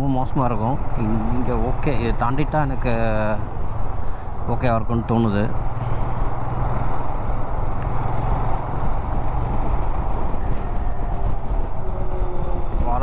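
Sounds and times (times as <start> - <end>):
wind and road noise: 0.0 - 13.0
motorcycle engine running: 5.1 - 12.8.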